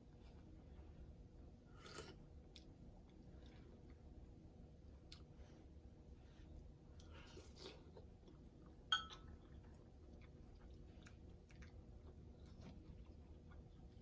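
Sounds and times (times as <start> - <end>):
person chewing: 1.7 - 4.2, 4.8 - 5.8, 6.4 - 14.0
metal spoon clinking glass bowl: 8.9 - 9.3.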